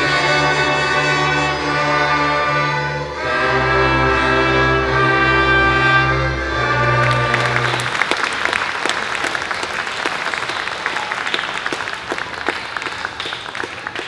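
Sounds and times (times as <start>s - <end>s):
audience applauding: 6.9s - 14.0s.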